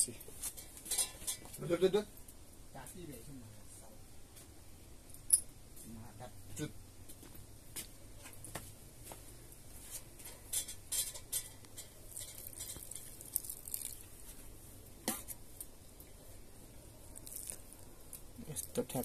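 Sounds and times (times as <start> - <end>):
utensils clinking against pot: 0.6 - 1.6, 10.3 - 13.1.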